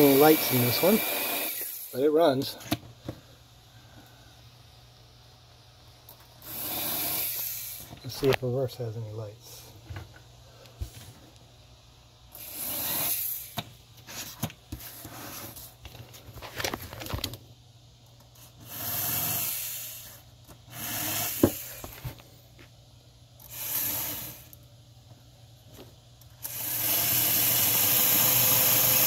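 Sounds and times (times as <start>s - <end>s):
small electric motor whirring: 0.0s - 2.1s, 6.4s - 7.9s, 12.3s - 13.6s, 18.4s - 22.0s, 23.4s - 24.6s, 26.4s - 29.0s.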